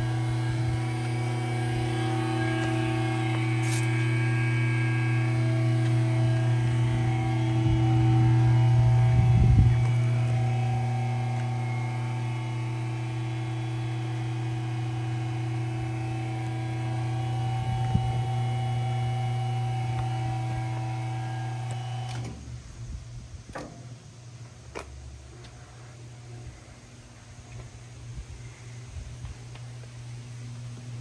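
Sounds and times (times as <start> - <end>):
lift motor humming: 0.0 - 22.6.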